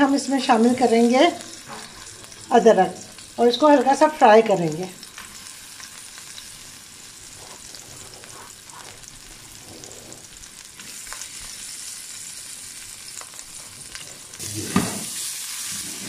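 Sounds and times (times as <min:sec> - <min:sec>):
garlic sizzling in hot oil: 0:00.0 - 0:16.0.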